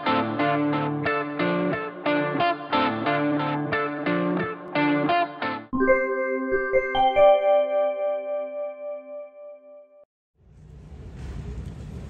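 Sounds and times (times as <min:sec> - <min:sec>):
strummed guitar chords: 0:00.0 - 0:05.8.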